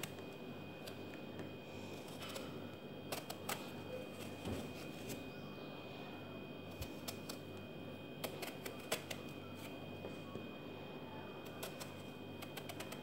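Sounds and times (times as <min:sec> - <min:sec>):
faint steady hum: 0:00.0 - 0:13.0
knife clicking through eggplant skin: 0:03.1 - 0:03.7, 0:06.8 - 0:07.4, 0:08.2 - 0:09.2, 0:11.5 - 0:13.0.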